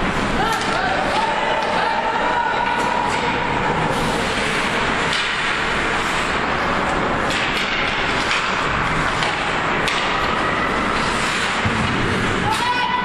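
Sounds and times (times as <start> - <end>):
sticks and puck knocking: 6.8 - 12.9.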